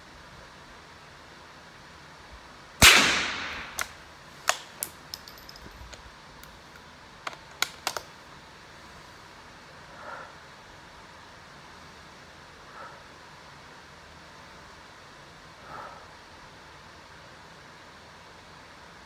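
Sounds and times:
rifle shot with echo: 2.8 - 4.0
rifle bolt clicking: 7.3 - 8.1.

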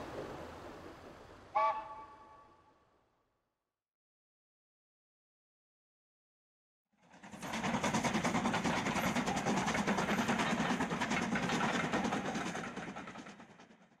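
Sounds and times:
steam locomotive chuffing: 7.0 - 14.0.

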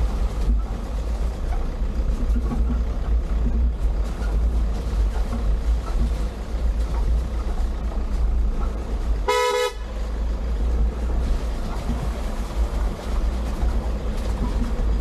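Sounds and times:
vehicle driving rumble: 0.0 - 15.0
vehicle horn toot: 9.2 - 9.9.

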